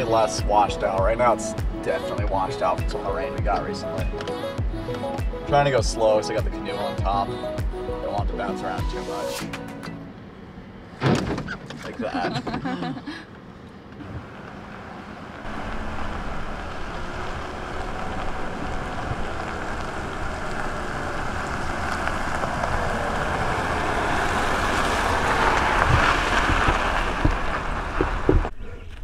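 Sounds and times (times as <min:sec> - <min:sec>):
tyres crunching on gravel: 0:00.0 - 0:07.4, 0:13.7 - 0:29.0
truck engine rumble: 0:00.0 - 0:29.0.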